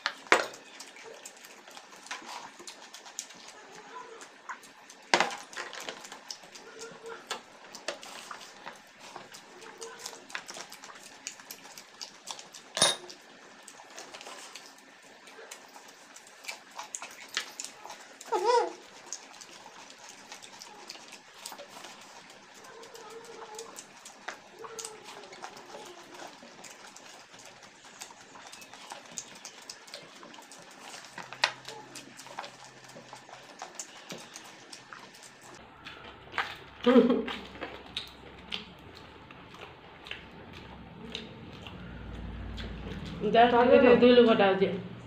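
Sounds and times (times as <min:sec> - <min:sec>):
fingers and rice clicking on plates: 0:00.0 - 0:43.2
chewing and lip-smacking: 0:00.0 - 0:43.9
tableware clink: 0:12.8 - 0:13.1.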